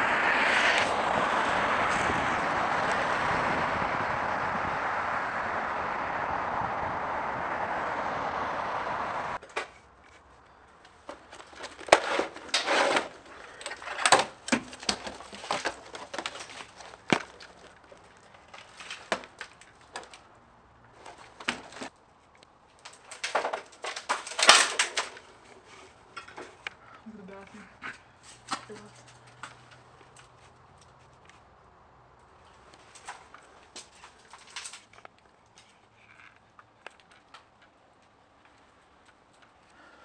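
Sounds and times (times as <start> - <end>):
distant traffic hiss: 0.0 - 11.2
footsteps on debris: 9.4 - 20.2.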